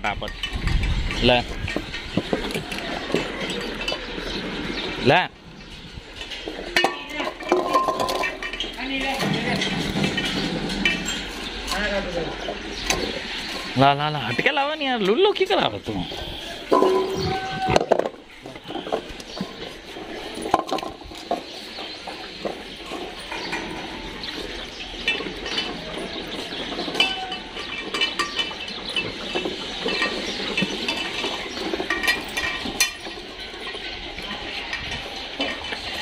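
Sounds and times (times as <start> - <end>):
clinks against metal bowls: 6.2 - 13.2, 16.6 - 19.7, 20.3 - 36.0.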